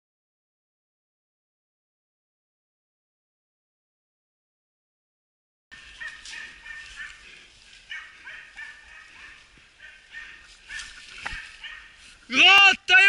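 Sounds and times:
faint dog barks: 0:05.8 - 0:12.2.

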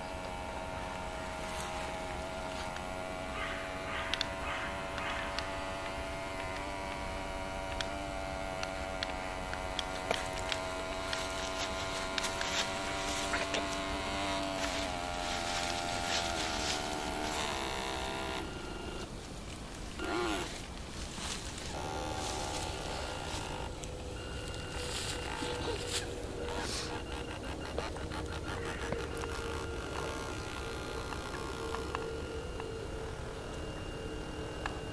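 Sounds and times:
electric motor whining: 0:00.0 - 0:34.9
faint clicks: 0:02.7 - 0:11.5.

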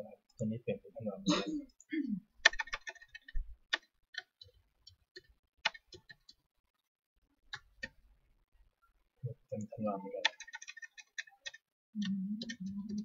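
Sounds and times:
keyboard keys clicking: 0:02.4 - 0:06.4, 0:10.2 - 0:13.0.

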